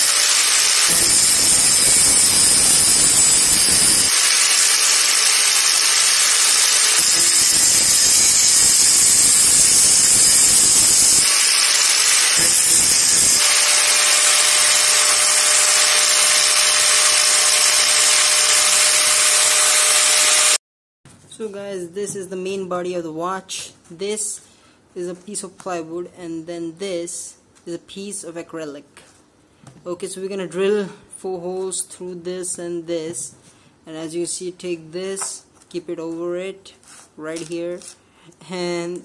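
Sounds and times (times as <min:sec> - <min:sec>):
angle grinder running: 0:00.0 - 0:20.6
disc grinding metal: 0:00.0 - 0:20.6.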